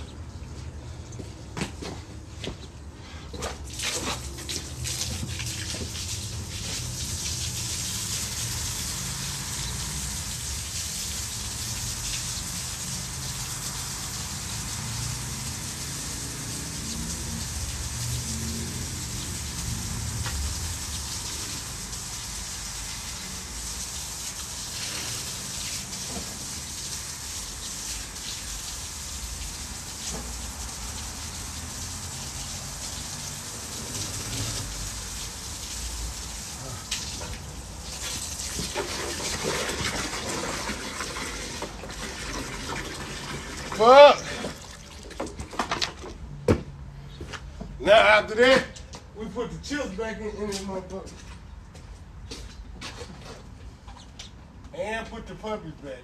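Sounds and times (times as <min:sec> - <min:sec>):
hose nozzle spraying water: 0:03.4 - 0:45.3.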